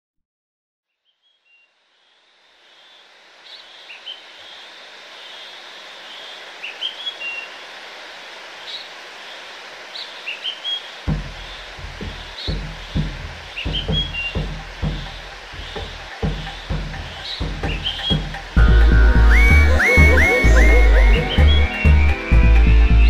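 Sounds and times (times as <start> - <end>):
steady rainforest hiss: 1.2 - 23.0
birds chirping and whistling: 10.0 - 23.0
deep rhythmic beats: 11.1 - 23.0.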